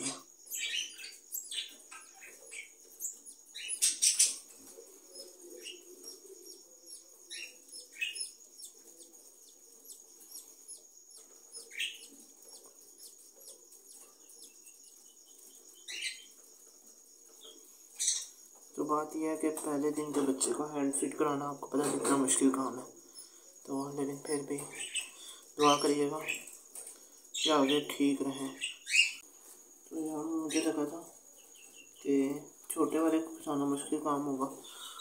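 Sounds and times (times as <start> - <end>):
parrot chick cheeping: 5.1 - 15.0.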